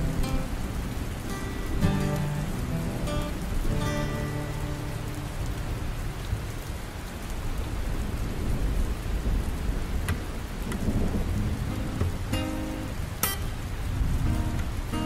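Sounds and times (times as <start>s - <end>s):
steady rain falling: 0.0s - 15.0s
low rumble of thunder: 7.1s - 15.0s.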